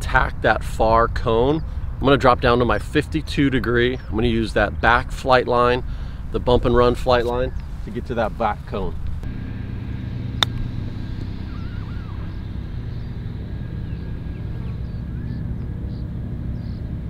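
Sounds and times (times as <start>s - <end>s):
low rumble: 8.9s - 17.0s
golf club striking ball: 10.2s - 15.0s.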